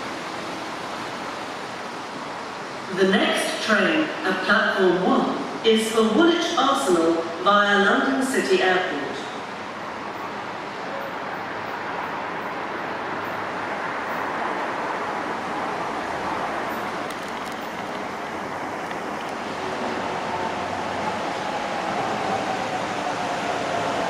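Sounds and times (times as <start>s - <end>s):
faint train whine: 0.0s - 24.0s
train wheels rumbling on rail: 9.0s - 24.0s.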